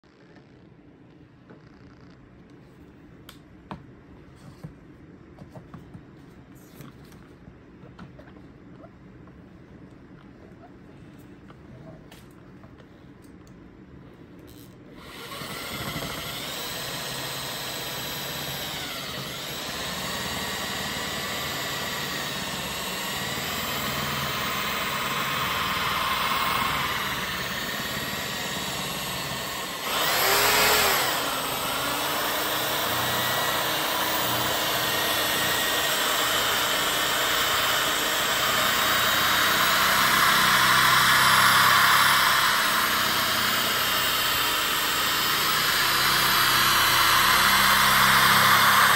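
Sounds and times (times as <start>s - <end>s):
electric polisher motor whine: 15.1s - 48.9s.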